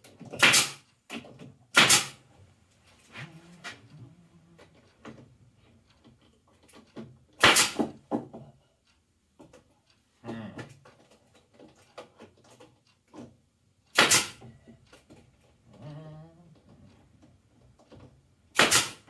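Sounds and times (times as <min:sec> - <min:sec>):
pneumatic stapler firing: 0:00.4 - 0:00.8, 0:01.7 - 0:02.2, 0:07.4 - 0:07.9, 0:13.9 - 0:14.4, 0:18.5 - 0:19.0
knocks of wood being handled: 0:04.6 - 0:08.7, 0:09.3 - 0:15.8.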